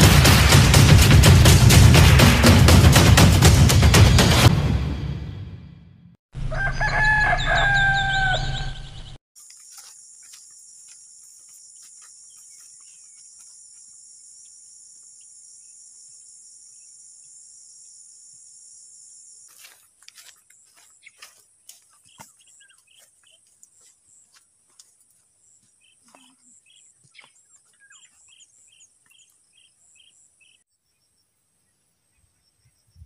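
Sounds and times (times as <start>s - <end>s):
rooster crowing: 6.4s - 9.0s.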